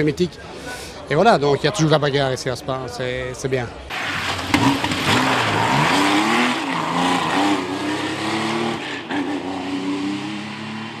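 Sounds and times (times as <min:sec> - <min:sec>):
rally car engine revving: 0:04.0 - 0:11.0.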